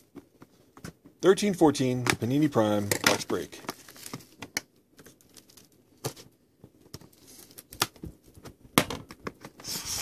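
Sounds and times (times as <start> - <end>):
plastic shrink wrap crinkling: 2.8 - 5.8, 7.0 - 8.4.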